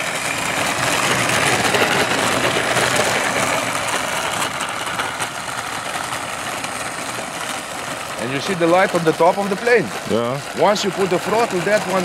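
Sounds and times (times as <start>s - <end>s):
electric propellers whirring: 0.0s - 12.0s.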